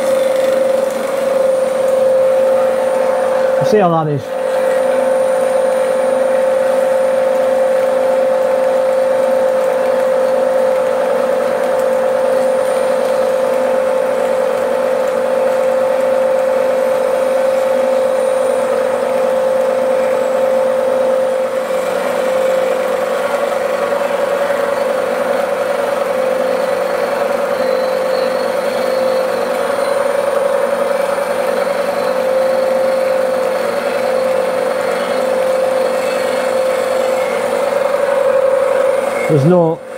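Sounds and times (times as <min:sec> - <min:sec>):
milling machine cutting steel: 0:00.0 - 0:39.9.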